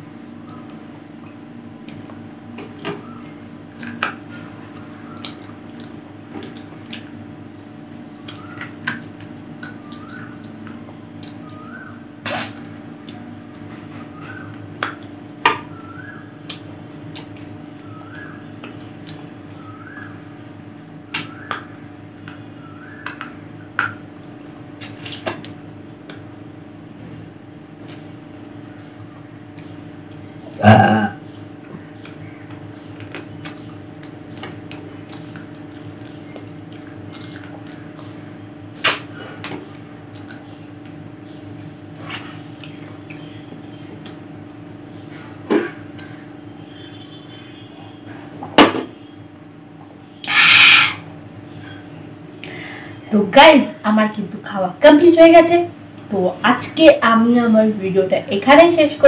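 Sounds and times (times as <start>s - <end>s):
steady low hum: 0.0s - 59.0s
bones crunching while chewing: 3.7s - 7.2s, 7.9s - 11.6s, 32.0s - 44.3s.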